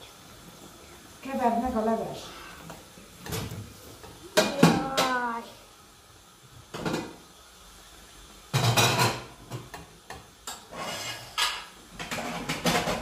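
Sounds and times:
spoon scraping a metal pot: 10.5 - 12.6.

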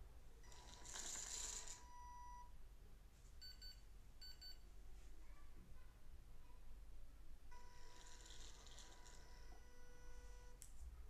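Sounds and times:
small motor whirring and rattling: 0.5 - 1.8, 7.8 - 9.3.

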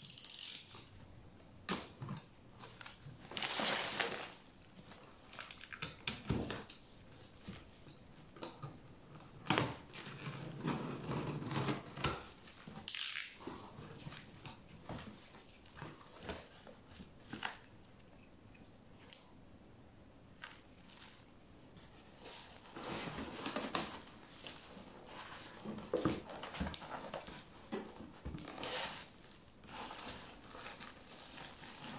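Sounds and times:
cardboard tearing: 9.4 - 14.4, 22.0 - 31.9
cardboard flaps scraping and rustling: 21.8 - 31.9.

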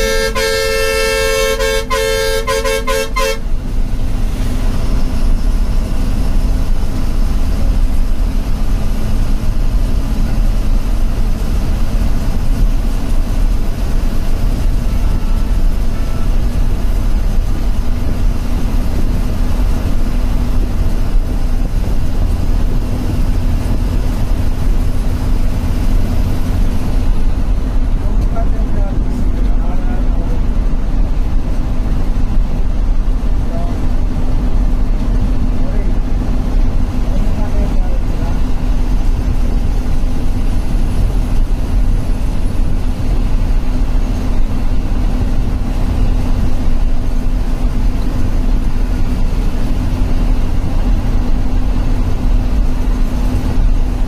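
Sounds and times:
bus horn short blasts: 0.0 - 3.6
diesel bus engine running: 0.0 - 54.0
road noise: 0.0 - 54.0.

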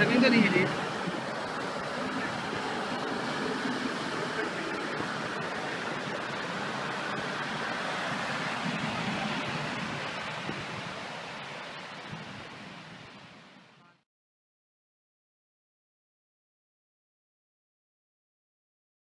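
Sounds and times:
surf rushing: 0.0 - 13.8
wind on microphone: 0.0 - 14.0.

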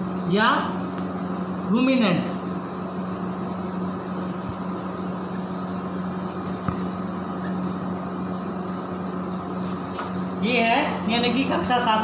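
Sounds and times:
mechanical hum: 0.0 - 12.0
hiss: 9.6 - 10.1.

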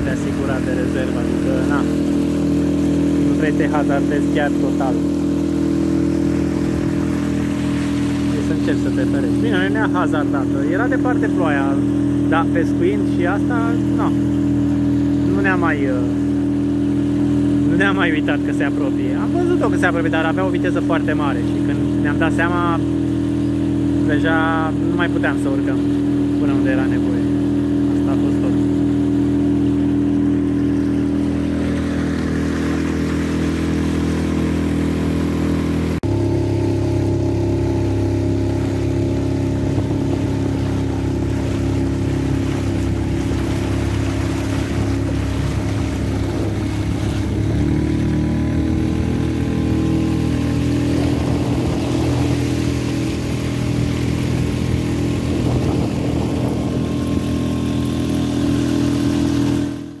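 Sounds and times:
boat motor running: 0.0 - 60.0
water noise: 0.0 - 60.0
wind noise: 50.6 - 58.0.

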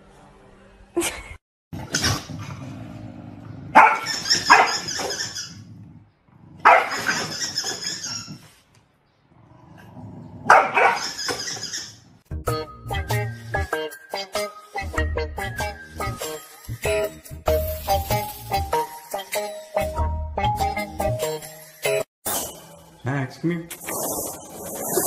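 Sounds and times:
dog barking and growling: 1.8 - 8.4, 9.4 - 11.3.

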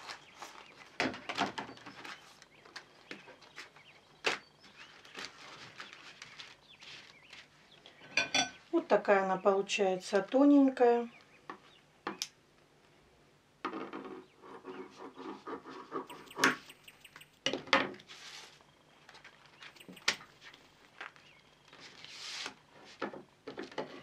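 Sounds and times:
rustling and peeling: 0.0 - 7.7.

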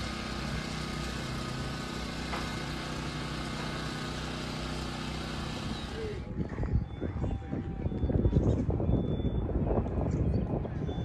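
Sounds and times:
engine idling: 0.0 - 6.3.

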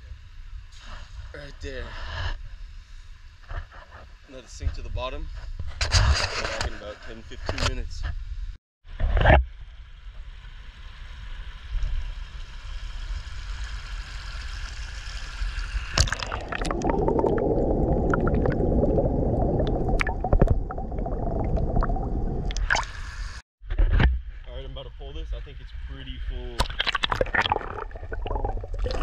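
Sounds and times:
muffled underwater churning: 15.7 - 23.4, 26.6 - 29.0.

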